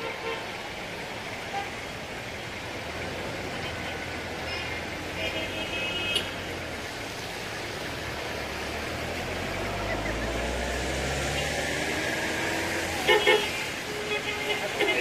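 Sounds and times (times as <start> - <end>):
road traffic noise: 0.0 - 15.0
vehicle engine rumbling past: 6.8 - 13.1
car horn toots: 13.0 - 15.0.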